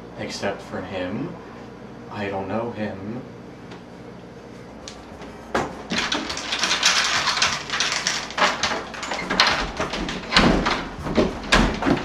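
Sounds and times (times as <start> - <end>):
rustling and handling noises: 4.5 - 12.0
dull knocks: 9.3 - 12.0.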